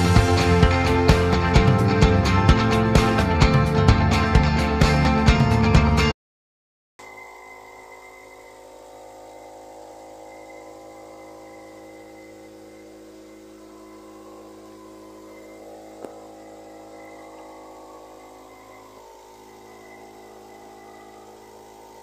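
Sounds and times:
steady multi-tone hum: 7.0 - 22.0.

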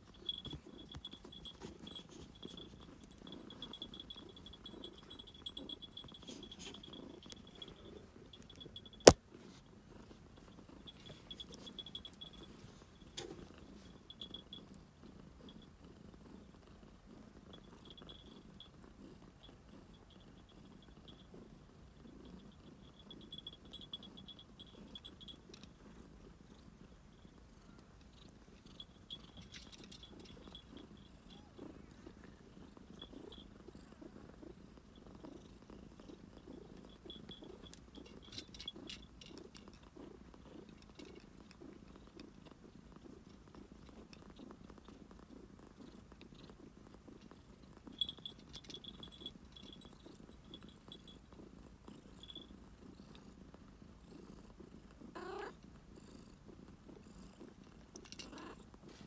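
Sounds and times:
cat purring: 0.0 - 59.0.

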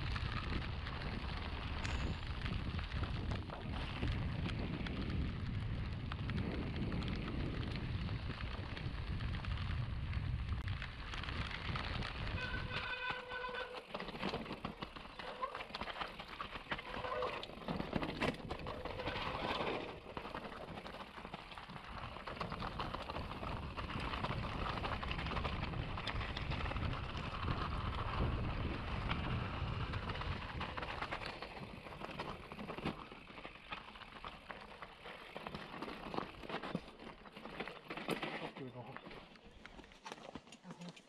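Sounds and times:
wind buffeting microphone: 0.0 - 13.2, 21.6 - 32.5
tyre and trail noise: 0.0 - 41.0.

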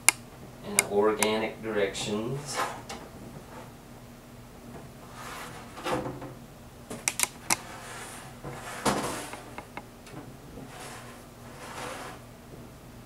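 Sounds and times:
sharp clicks: 7.0 - 7.6.

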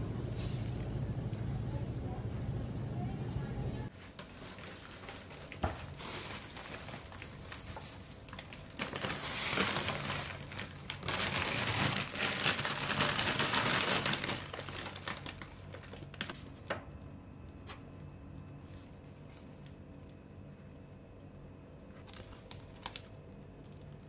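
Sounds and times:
plastic bags crinkling: 3.9 - 16.8, 21.9 - 24.0.

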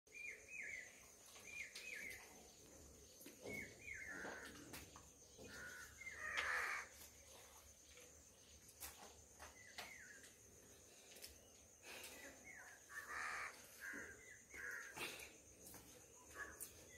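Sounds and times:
crows cawing: 5.4 - 7.0, 12.9 - 15.1.

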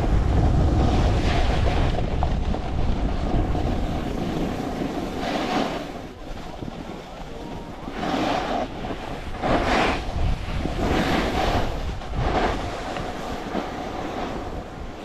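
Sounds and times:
steady low rumble: 0.0 - 5.2
skis scraping over snow: 0.0 - 15.0.

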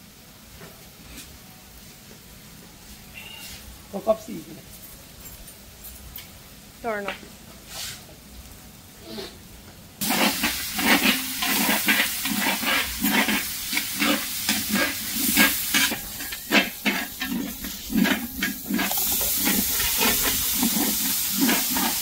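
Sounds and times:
food sizzling in a pot: 6.2 - 22.0
spoon stirring and scraping pot: 10.0 - 22.0.

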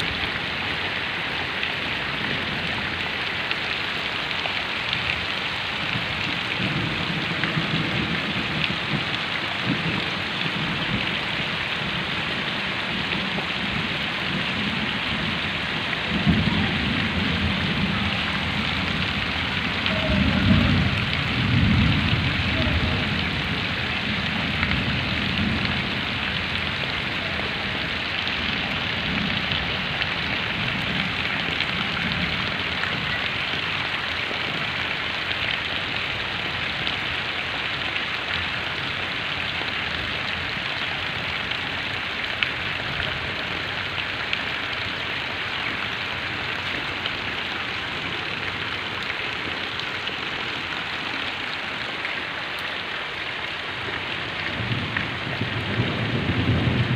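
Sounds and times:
heavy rain on mud and water: 0.0 - 56.9.

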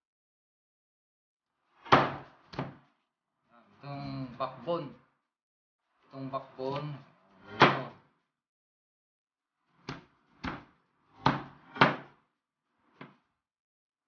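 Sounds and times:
cleaver chopping bone on board: 1.9 - 2.8, 9.9 - 12.2.

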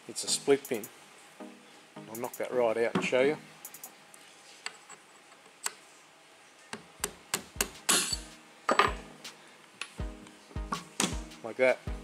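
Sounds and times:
hammer tapping steel punch: 6.8 - 9.0.

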